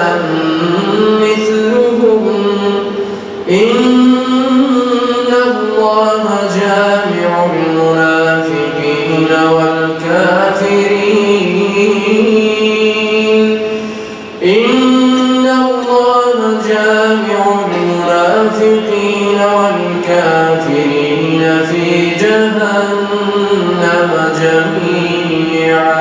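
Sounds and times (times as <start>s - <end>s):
man chanting recitation: 0.0s - 26.0s.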